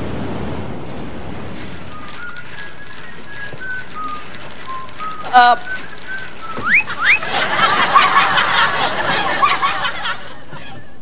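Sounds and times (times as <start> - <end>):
person whistling a tune: 1.9 - 7.3
audience laughing and chattering: 2.2 - 11.0.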